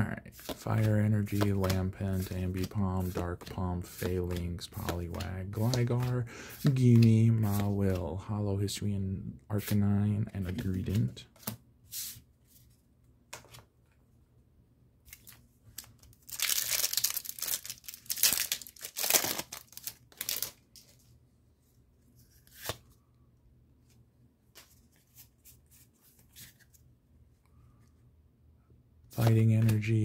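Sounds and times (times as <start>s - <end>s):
foil wrapper tearing and crinkling: 16.2s - 20.6s.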